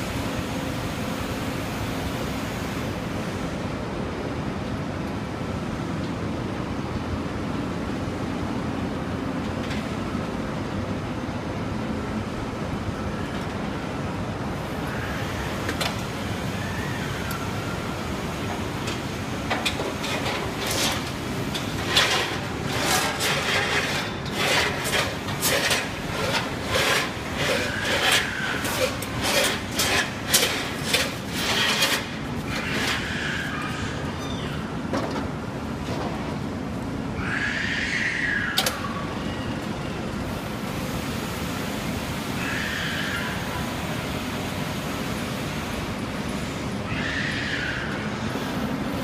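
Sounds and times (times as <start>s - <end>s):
rubbing or scraping strokes: 20.0s - 33.1s.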